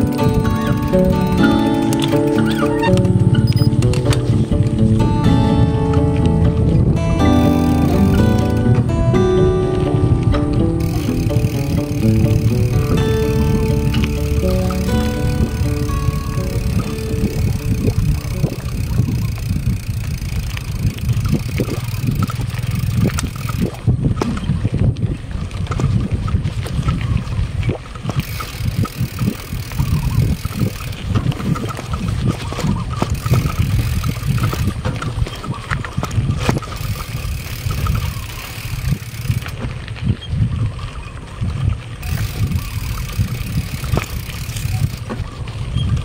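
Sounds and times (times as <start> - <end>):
wind buffeting microphone: 0.0 - 46.0
bike knocks and rattles: 10.8 - 24.9, 28.0 - 40.3, 42.0 - 46.0.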